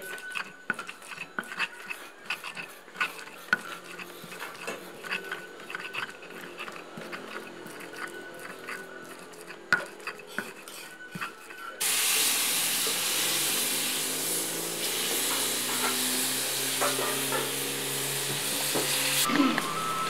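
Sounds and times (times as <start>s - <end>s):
stone pestle grinding in mortar: 0.0s - 11.9s, 15.2s - 17.6s
pestle knocking on mortar: 9.7s - 10.6s.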